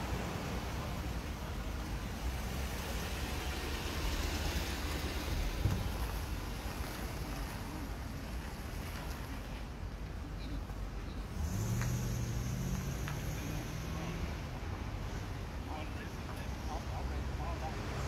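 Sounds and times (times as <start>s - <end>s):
street background: 0.0s - 18.0s
car driving past: 11.3s - 15.3s.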